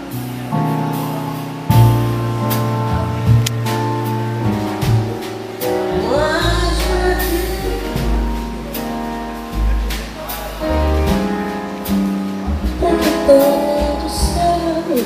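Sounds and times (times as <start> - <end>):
drums with cymbal strokes: 0.0 - 15.0
piano: 0.0 - 15.0
upright bass: 0.0 - 15.0
woman singing: 5.9 - 8.3, 12.8 - 15.0.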